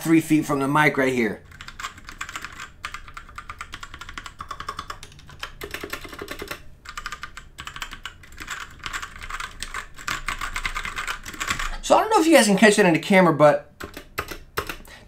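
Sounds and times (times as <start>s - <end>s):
mechanical keyboard typing: 1.4s - 11.8s, 13.8s - 14.9s.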